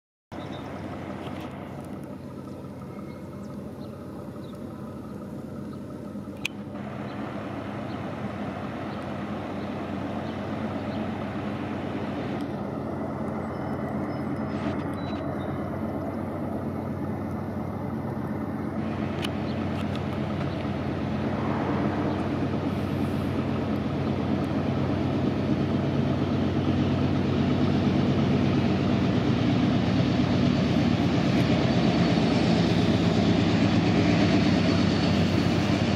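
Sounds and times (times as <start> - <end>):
diesel locomotive engines drone: 0.3 - 35.9.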